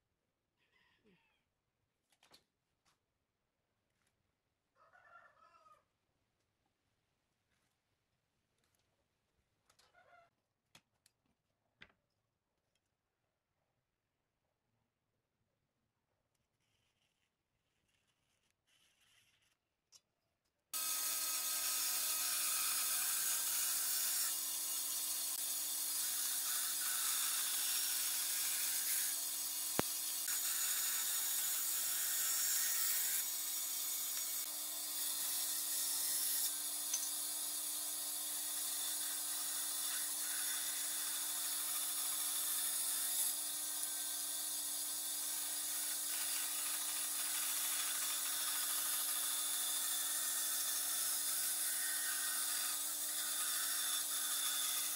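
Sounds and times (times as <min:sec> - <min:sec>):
blade cutting wood: 0:20.7 - 0:54.9.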